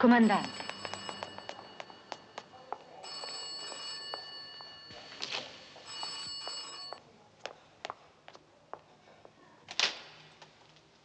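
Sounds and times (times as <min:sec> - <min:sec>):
bell-like electronic ringing: 0:00.0 - 0:07.0.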